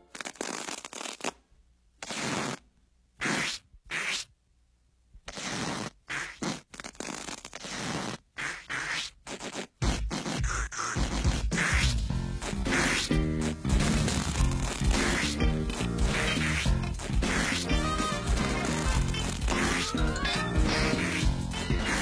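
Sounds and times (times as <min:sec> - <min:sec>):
cartoon sticky gum scraping: 0:00.0 - 0:01.4, 0:02.0 - 0:02.6, 0:03.2 - 0:04.3, 0:05.2 - 0:22.0
music: 0:11.7 - 0:22.0.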